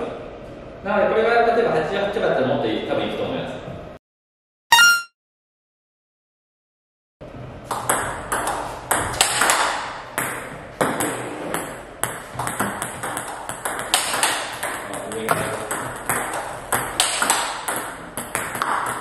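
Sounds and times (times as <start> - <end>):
ball hitting paddle: 7.7 - 19.0.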